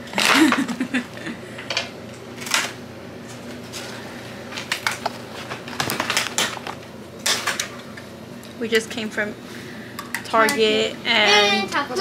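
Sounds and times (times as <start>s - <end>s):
plastic packaging rustling: 4.6s - 6.8s.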